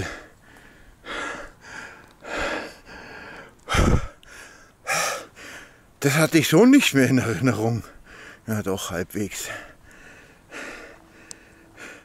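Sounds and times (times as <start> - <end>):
man panting heavily: 0.0 - 5.9, 7.9 - 8.5, 9.5 - 12.0.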